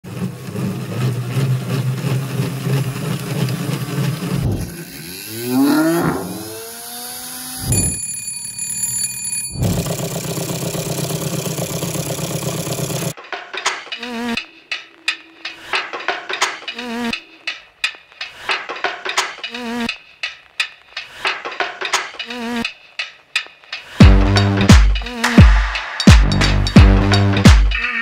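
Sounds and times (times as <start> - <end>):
hand-cranked generator whirring: 0.0 - 7.7, 9.6 - 13.2
solenoid engine rattling: 0.1 - 5.6, 9.6 - 13.1
motor high-pitched whine: 4.4 - 8.0.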